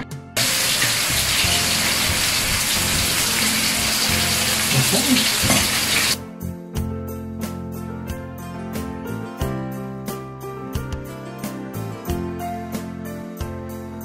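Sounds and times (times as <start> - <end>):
soft guitar music: 0.0 - 6.1
food sizzling on grill pan: 0.4 - 6.2.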